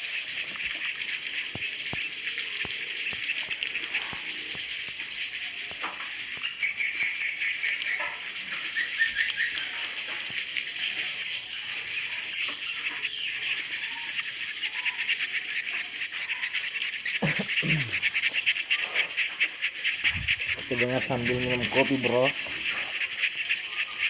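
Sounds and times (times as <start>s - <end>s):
fast repeated chirps: 0.0s - 5.0s, 11.0s - 24.0s
swiftlets chirping: 0.0s - 5.6s, 6.3s - 24.0s.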